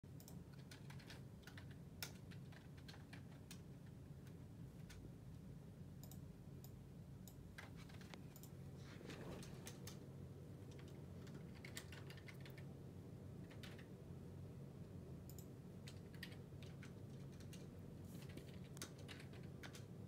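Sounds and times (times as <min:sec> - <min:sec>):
steady low hum: 0:00.1 - 0:20.0.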